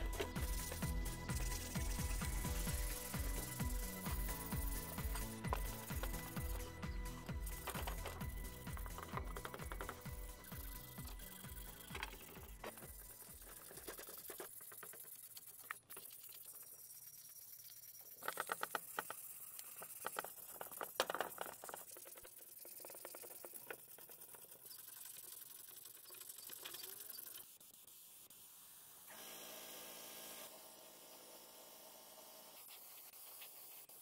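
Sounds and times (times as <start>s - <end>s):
sandpaper rasping on metal: 0.0s - 8.0s, 32.5s - 34.0s
steady hum: 0.0s - 13.5s.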